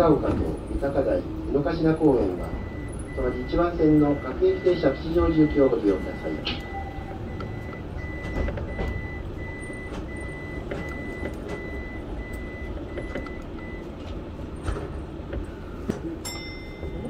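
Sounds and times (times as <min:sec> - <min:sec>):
electric train running rumble: 0:00.0 - 0:17.0
high electronic beep: 0:02.5 - 0:13.8.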